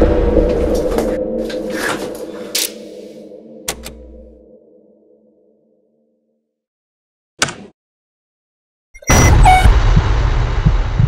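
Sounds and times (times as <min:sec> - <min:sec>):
dark horror score music: 0:00.0 - 0:05.6.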